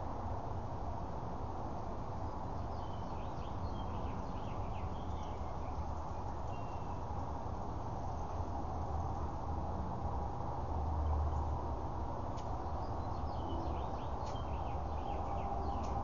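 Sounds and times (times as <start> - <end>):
outdoor background rush: 0.0 - 16.0
faint high bird chirps: 6.5 - 7.0, 12.7 - 16.0.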